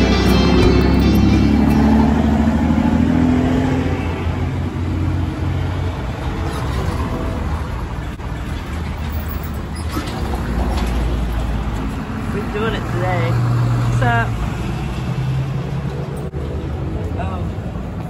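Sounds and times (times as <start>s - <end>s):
traffic rumble: 0.0s - 18.0s.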